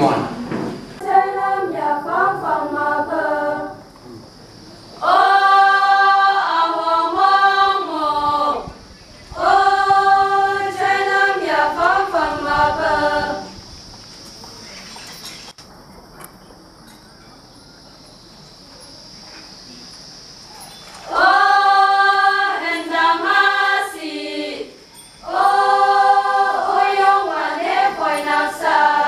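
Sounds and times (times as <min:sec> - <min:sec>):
girls singing together: 0:01.0 - 0:04.0, 0:04.9 - 0:13.6, 0:21.0 - 0:29.0.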